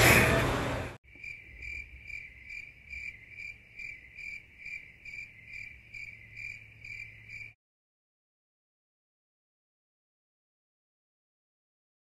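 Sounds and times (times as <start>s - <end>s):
cricket chirping: 1.0s - 7.6s.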